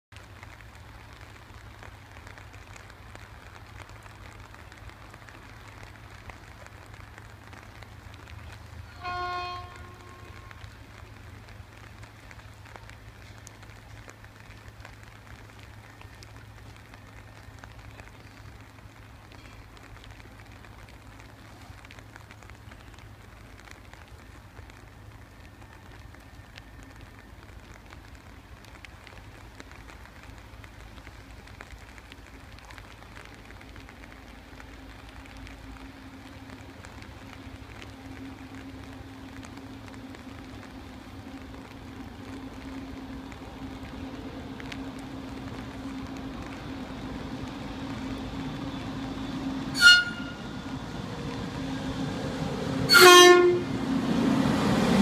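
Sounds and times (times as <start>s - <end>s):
steady rain falling: 0.0s - 55.0s
short horn-like tone: 8.9s - 10.6s, 49.7s - 50.6s, 52.9s - 53.8s.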